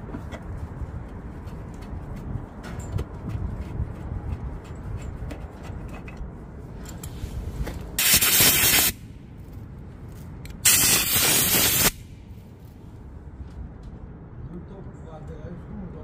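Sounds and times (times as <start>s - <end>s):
pressurised spray hissing: 8.0s - 9.0s, 10.7s - 12.2s.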